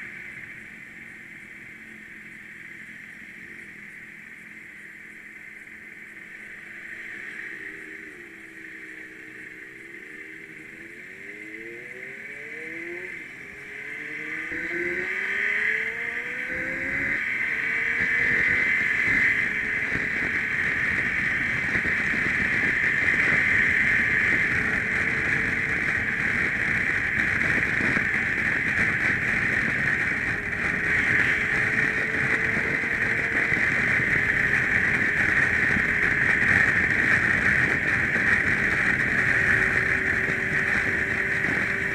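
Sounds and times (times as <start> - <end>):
motorcycle engine accelerating: 5.0 - 41.9
wind on the microphone: 15.9 - 41.9.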